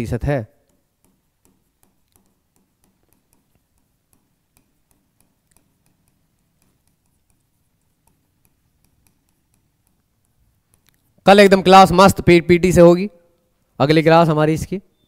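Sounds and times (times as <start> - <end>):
stylus tapping on screen: 0.6 - 12.2.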